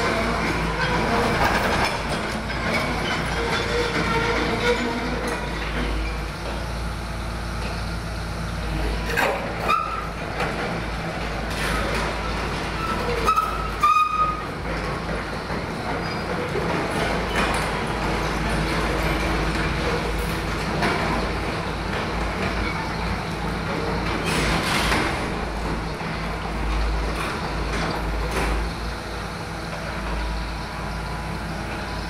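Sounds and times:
excavator diesel engine: 0.0 - 32.0
short metallic squeals: 9.1 - 10.2, 11.6 - 14.6.

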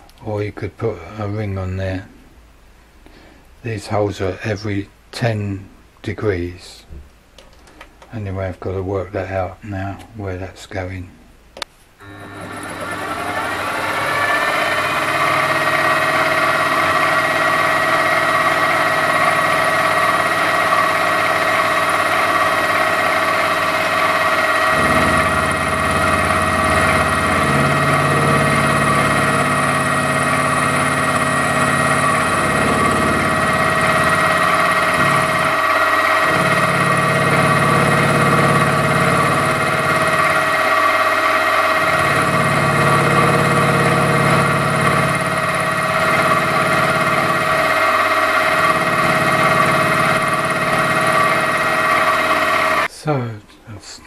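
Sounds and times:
milling machine whining: 12.0 - 52.9
low hum: 23.0 - 52.0.

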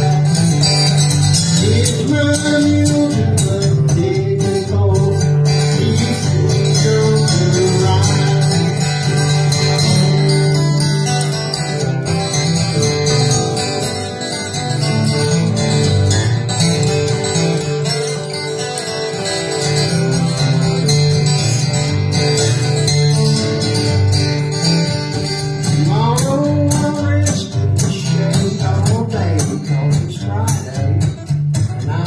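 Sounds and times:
person singing: 0.0 - 8.9, 25.7 - 31.2
acoustic guitars strumming: 0.0 - 32.0.

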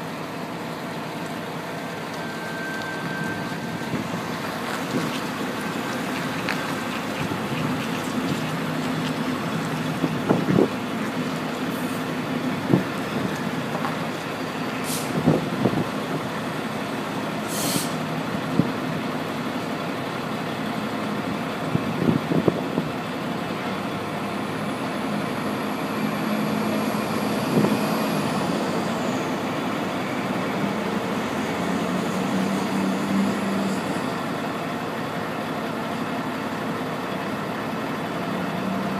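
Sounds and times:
diesel locomotive engine running: 0.0 - 38.9
high squeal: 2.1 - 4.3, 25.5 - 29.6
air hiss: 17.5 - 18.0.

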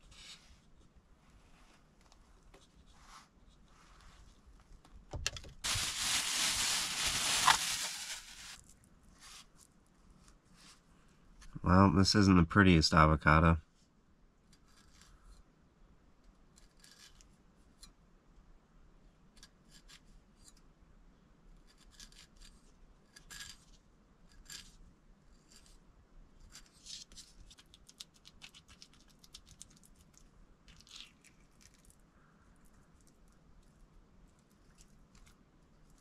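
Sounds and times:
avocado being scooped and spread: 0.0 - 4.8, 14.4 - 15.4, 16.2 - 18.0, 21.5 - 36.0.

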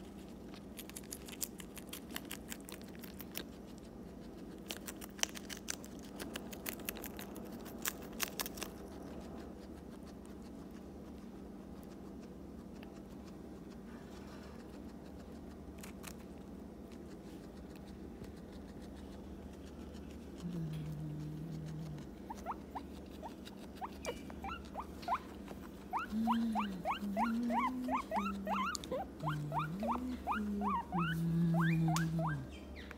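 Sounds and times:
guinea pig eating: 0.0 - 32.9
low hummed tones: 17.6 - 32.9
guinea pig squeaking: 21.6 - 32.9.

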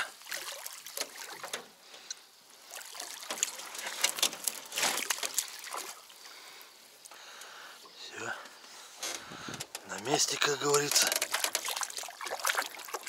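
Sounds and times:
water splashing and dripping: 0.0 - 7.2, 10.3 - 13.0.

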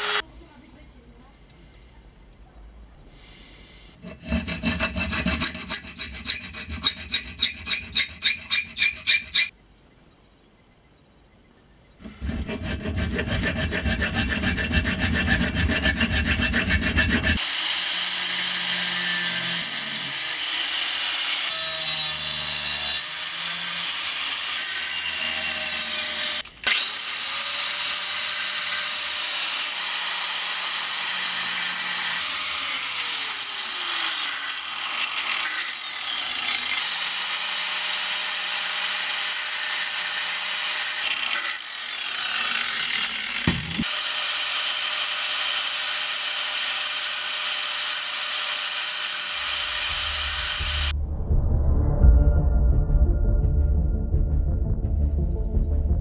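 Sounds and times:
angle grinder grinding steel: 0.0 - 0.2, 4.0 - 9.5, 12.0 - 50.9
fast rhythmic scraping on metal: 4.0 - 9.5, 12.0 - 17.4.

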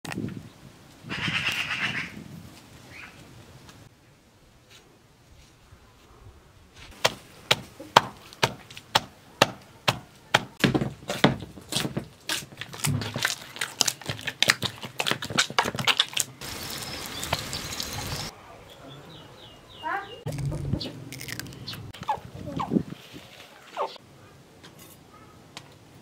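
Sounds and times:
oil sizzling in a pan: 16.4 - 18.3.

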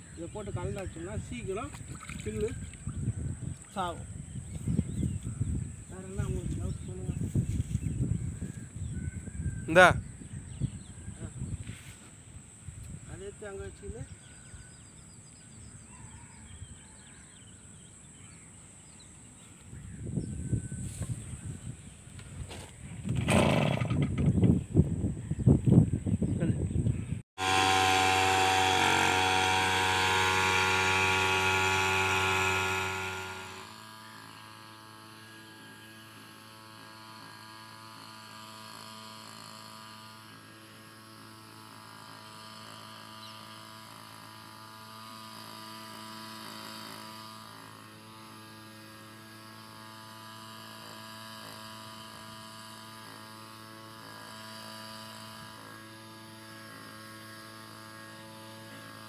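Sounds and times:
backpack sprayer motor humming: 27.4 - 59.0.

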